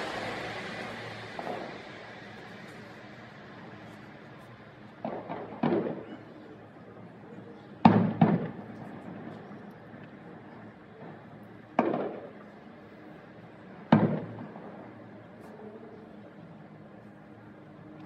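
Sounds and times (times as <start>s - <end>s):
fireworks booming: 0.0s - 3.8s, 4.9s - 6.3s, 7.8s - 9.3s, 11.8s - 12.3s, 13.9s - 14.8s.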